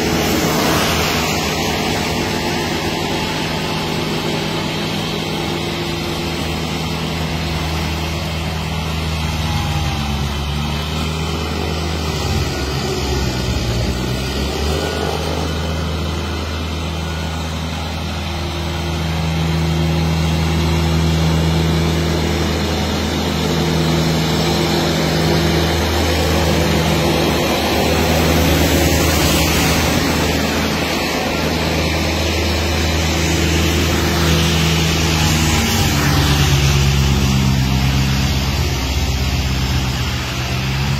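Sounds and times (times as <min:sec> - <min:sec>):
tractor engine with snow blower: 0:00.0 - 0:40.9.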